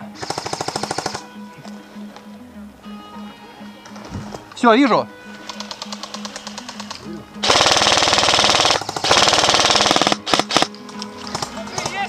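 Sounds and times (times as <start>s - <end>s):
airsoft rifle automatic fire: 0.2s - 1.2s, 5.5s - 10.7s.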